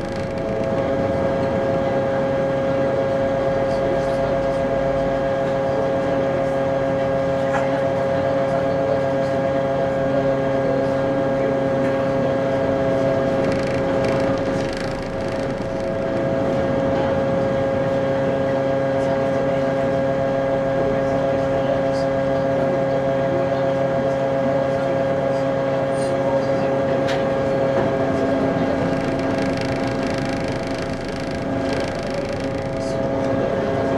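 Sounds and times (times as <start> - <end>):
ship machinery drone: 0.0 - 3.8, 12.6 - 18.1, 28.2 - 33.9.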